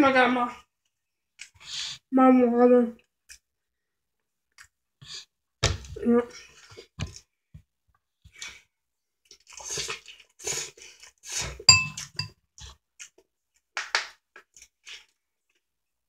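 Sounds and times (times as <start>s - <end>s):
person slurping and chewing noodles: 9.3s - 13.2s
fork clinking against bowl: 11.7s - 12.3s.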